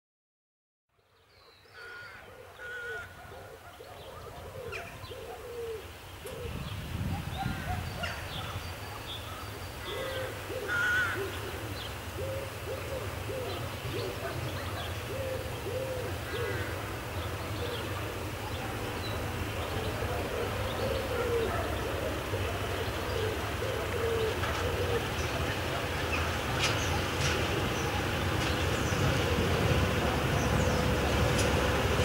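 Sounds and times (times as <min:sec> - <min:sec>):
birds calling: 0:01.3 - 0:32.0
diesel locomotive rumble: 0:13.6 - 0:32.0.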